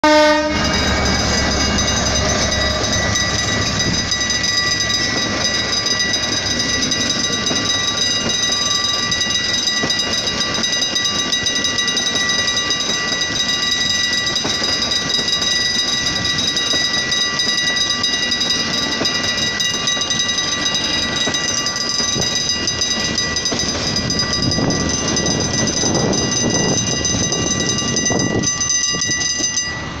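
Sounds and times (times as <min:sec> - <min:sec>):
train horn blast: 0:00.0 - 0:00.8
level crossing warning signal: 0:00.0 - 0:30.0
train wheels rumbling on rail: 0:00.0 - 0:30.0
wheels clacking over rail joints: 0:00.6 - 0:29.7.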